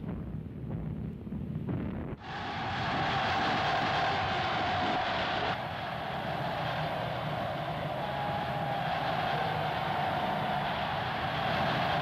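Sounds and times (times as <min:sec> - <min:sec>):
vehicle engines rumbling: 0:05.5 - 0:12.0.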